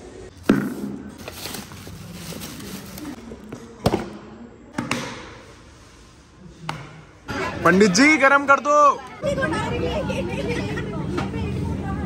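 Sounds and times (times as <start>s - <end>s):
plastic bag rustling: 0.7s - 3.2s.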